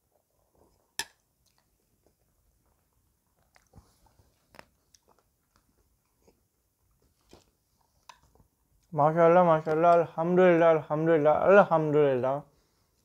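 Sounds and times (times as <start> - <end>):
person chewing rice: 0.0 - 8.9.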